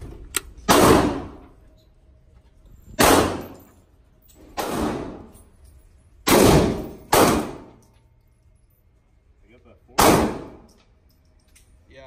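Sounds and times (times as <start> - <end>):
gunshots with echo: 0.7 - 1.4, 3.0 - 3.6, 4.6 - 5.3, 6.3 - 7.7, 10.0 - 10.7.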